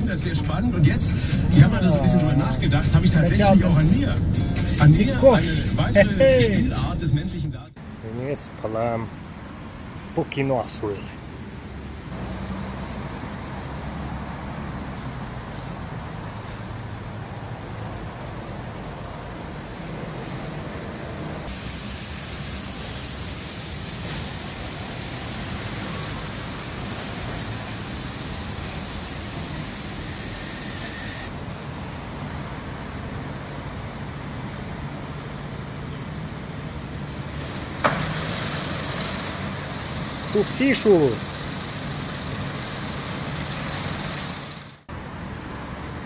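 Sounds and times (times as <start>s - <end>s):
car and wash machinery rumble: 0.0s - 8.0s, 11.2s - 46.0s
loud hiss of air or spray: 21.5s - 31.3s, 37.4s - 44.9s.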